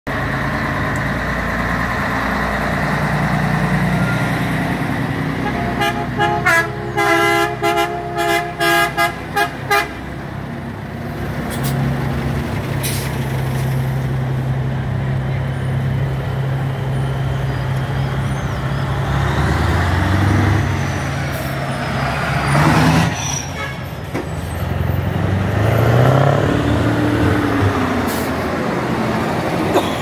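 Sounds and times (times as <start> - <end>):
truck engines passing: 0.1 - 30.0
truck air horn blasts: 5.3 - 10.0, 23.5 - 23.9.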